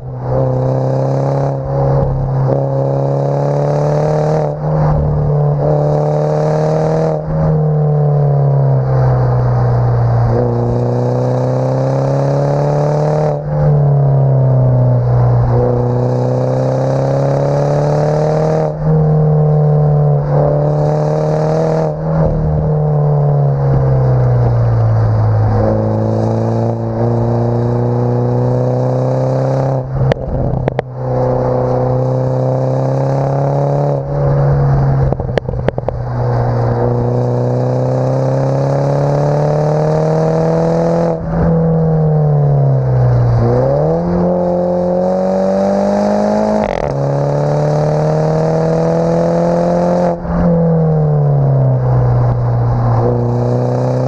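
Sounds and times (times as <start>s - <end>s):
car exhaust under hard acceleration: 0.0s - 54.0s
exhaust crackles: 29.8s - 32.1s, 34.0s - 37.7s.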